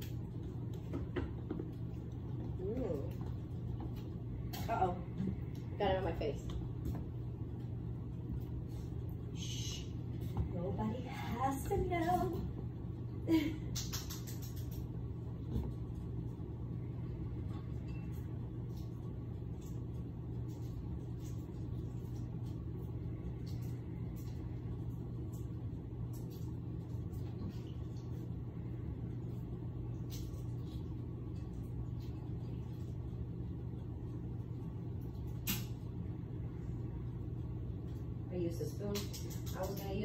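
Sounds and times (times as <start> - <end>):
low machine hum: 0.0 - 40.0
light clicks and taps: 38.8 - 40.0.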